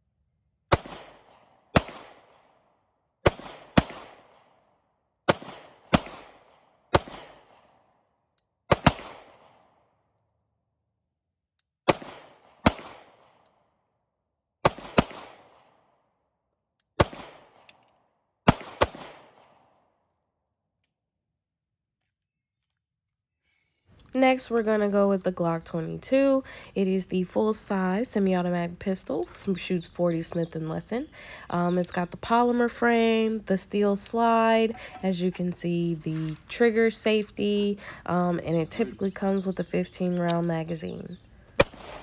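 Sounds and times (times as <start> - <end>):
gunshot echo: 0.7 - 2.6, 3.2 - 4.4, 5.3 - 7.6, 8.7 - 9.6, 11.9 - 13.4, 14.6 - 15.8, 17.0 - 17.7, 18.5 - 19.7, 41.6 - 42.0
pistol shots: 0.7 - 2.6, 3.2 - 7.8, 8.7 - 9.6, 11.9 - 13.6, 14.6 - 15.9, 17.0 - 17.8, 18.4 - 19.7, 41.6 - 42.0.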